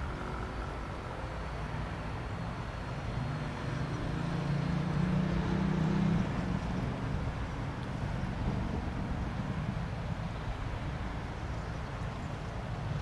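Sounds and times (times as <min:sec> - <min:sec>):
propeller plane engine droning: 0:00.0 - 0:13.0.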